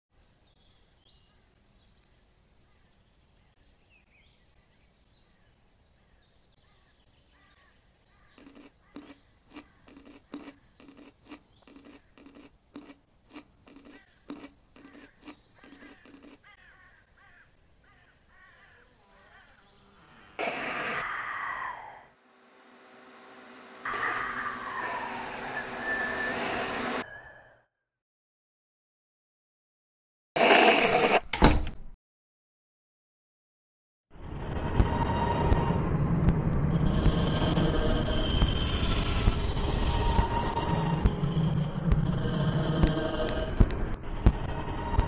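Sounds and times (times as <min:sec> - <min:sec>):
birds chirping: 0:00.6 - 0:13.0, 0:13.6 - 0:20.1, 0:36.7 - 0:45.0
loud falling-pitch sound: 0:22.2 - 0:27.0, 0:34.2 - 0:45.0.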